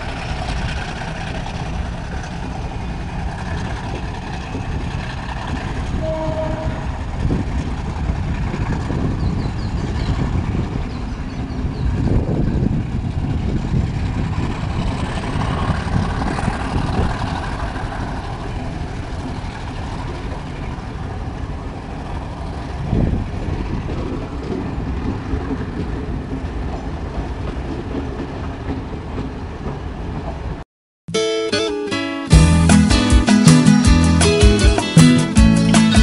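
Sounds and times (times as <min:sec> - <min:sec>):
train wheels rumbling on rails: 0:00.0 - 0:30.6
music: 0:31.1 - 0:36.0.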